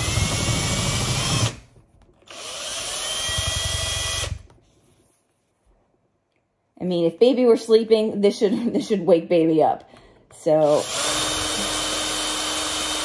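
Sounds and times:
cordless drill boring eggshell: 0.0 - 1.6, 2.3 - 4.5, 10.6 - 13.0.

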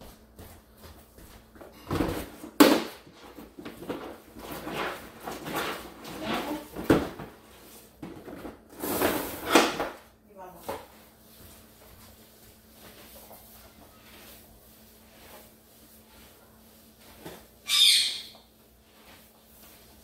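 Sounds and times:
mop swishing in water: 10.6 - 17.6, 18.3 - 20.0.

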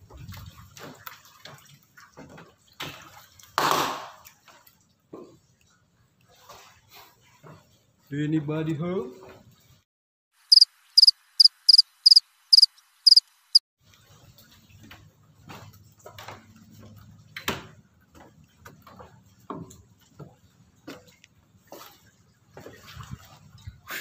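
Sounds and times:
cricket chirps: 10.5 - 13.6.

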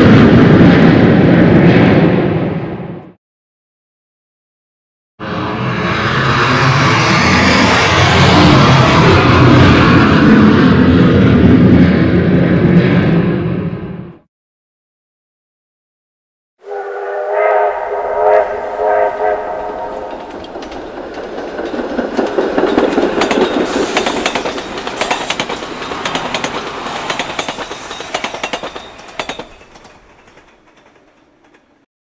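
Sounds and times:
steam locomotive chime whistle: 16.6 - 20.3
steam locomotive exhaust: 16.6 - 21.1, 22.9 - 30.2
wheels clattering over rail joints: 20.0 - 31.8.

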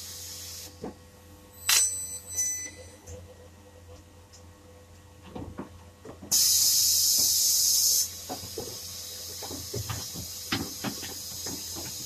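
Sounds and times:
compressed air hissing: 0.0 - 0.8, 6.3 - 12.0.

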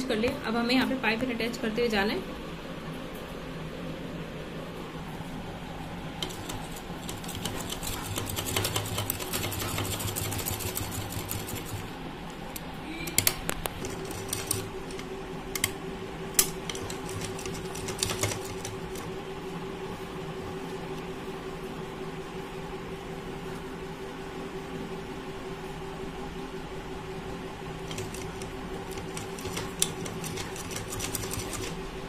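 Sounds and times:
sewing machine stitching: 6.2 - 11.8, 13.8 - 15.0, 16.7 - 19.0, 27.8 - 31.8.

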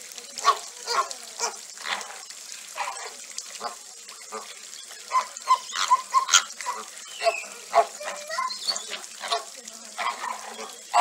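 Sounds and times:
birds splashing in shallow water: 0.0 - 11.0
flamingos honking: 4.3 - 11.0.

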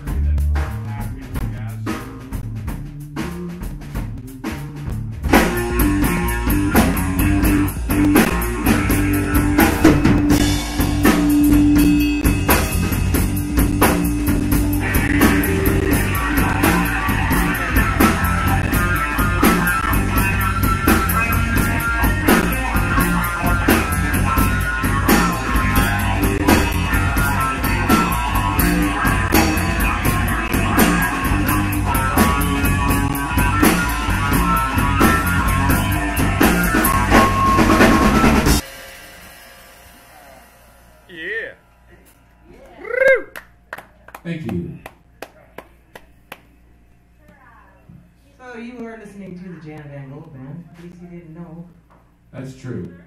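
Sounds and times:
drum kit beat: 0.0 - 42.1
bass guitar: 0.0 - 43.7
electric guitar: 5.3 - 38.6.

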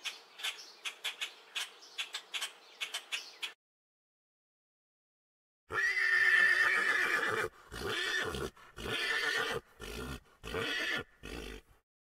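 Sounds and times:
horse whinnying: 5.7 - 11.7.

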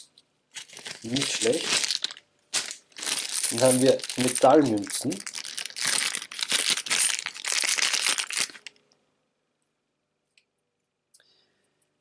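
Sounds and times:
plastic bag crinkling: 0.6 - 8.8.

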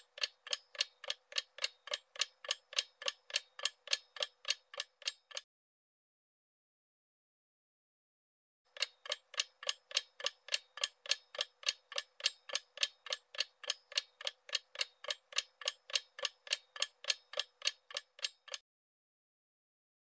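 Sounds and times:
clock ticking: 0.0 - 5.4, 8.7 - 18.6.

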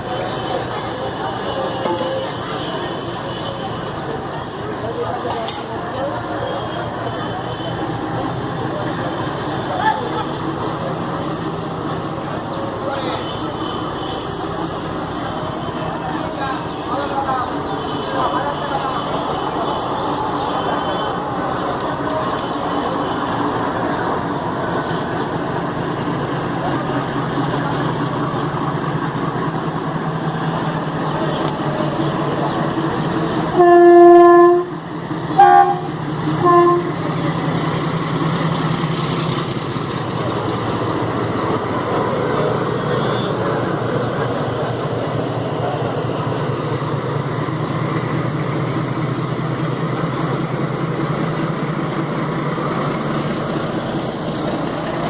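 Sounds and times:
diesel locomotive running: 0.0 - 55.0
locomotive horn blast: 33.5 - 37.0.

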